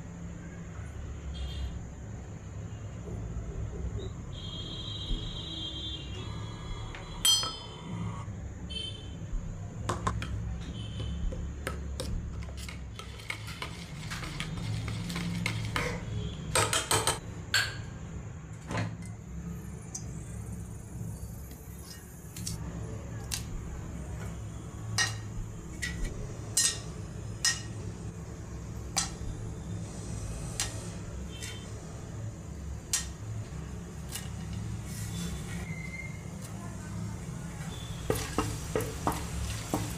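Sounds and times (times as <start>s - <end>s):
spoon scraping in steel bowl: 12.3s - 16.0s, 30.6s - 31.7s.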